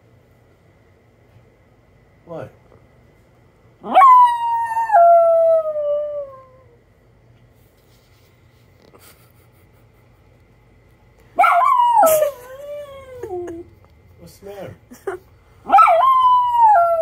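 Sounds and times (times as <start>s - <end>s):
dog howling: 3.8s - 6.8s, 11.4s - 13.7s, 15.7s - 17.0s.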